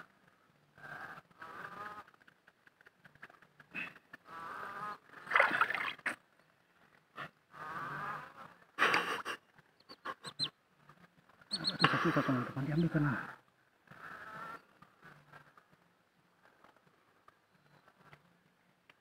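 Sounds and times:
mud and water sloshing: 5.2s - 6.2s.

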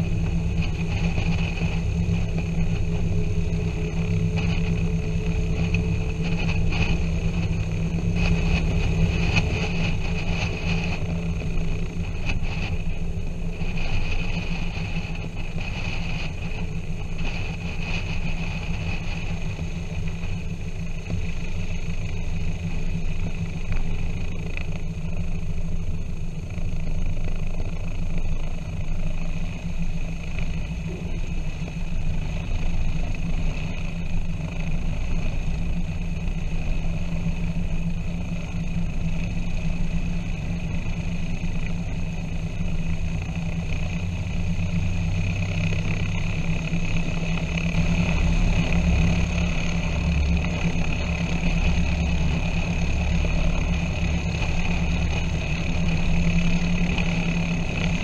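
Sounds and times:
piston aircraft engine running: 0.0s - 58.0s.

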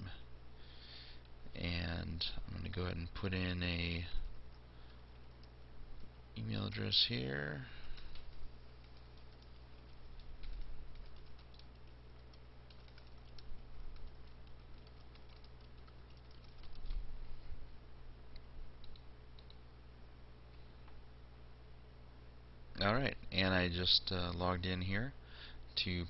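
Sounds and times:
low electrical hum: 0.0s - 26.0s
typing on keyboard: 5.1s - 6.2s, 7.9s - 17.0s.

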